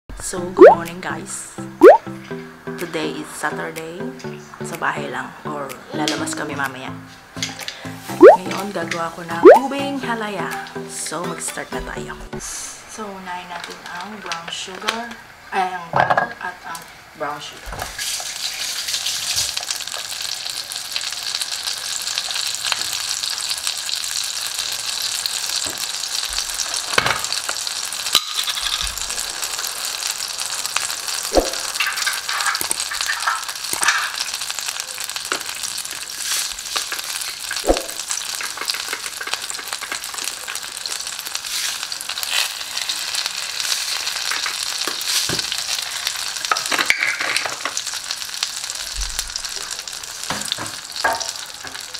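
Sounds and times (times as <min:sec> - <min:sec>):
butter sizzling in frying pan: 0:16.5 - 0:51.9.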